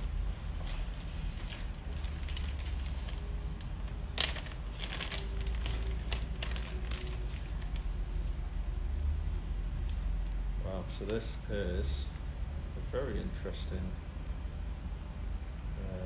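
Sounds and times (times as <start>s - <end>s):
plastic packaging crinkling: 0.0s - 7.9s.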